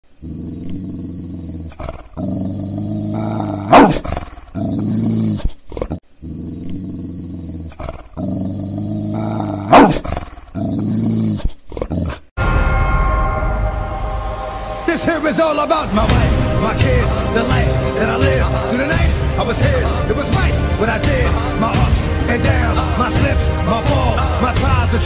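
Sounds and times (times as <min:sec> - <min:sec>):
dog growling: 0:00.2 - 0:12.3
dog snarling: 0:00.2 - 0:12.3.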